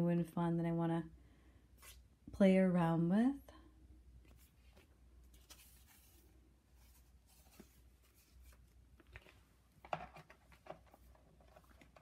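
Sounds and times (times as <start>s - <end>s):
rustling of packing sheet: 4.3s - 9.6s.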